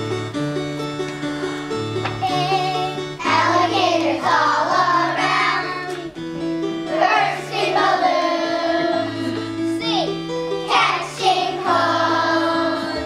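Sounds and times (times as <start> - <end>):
instrumental accompaniment: 0.0 - 13.0
children singing in unison: 2.2 - 6.0, 6.9 - 9.4, 10.6 - 13.0.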